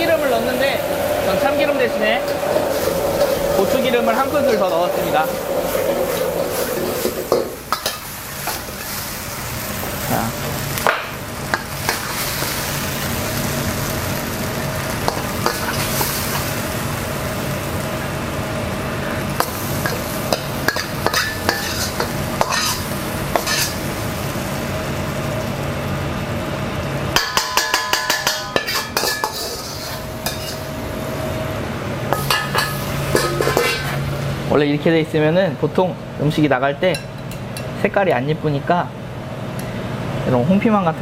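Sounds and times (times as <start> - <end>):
chicken sizzling in sauce: 0.0 - 31.2
steady low hum: 0.0 - 41.0
metal utensil scraping pan: 19.4 - 23.8, 27.2 - 30.7, 32.1 - 34.0.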